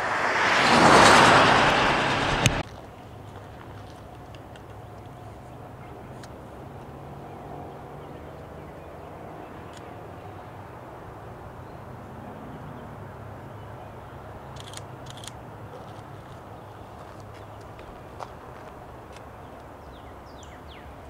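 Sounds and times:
diesel locomotive engine drone: 0.0 - 2.6.

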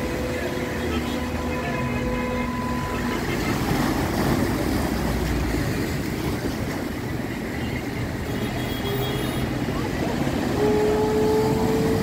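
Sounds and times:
car horn: 0.0 - 3.2, 8.2 - 9.5, 10.5 - 12.0
road traffic: 0.0 - 12.0
waves breaking on concrete: 0.0 - 12.0.

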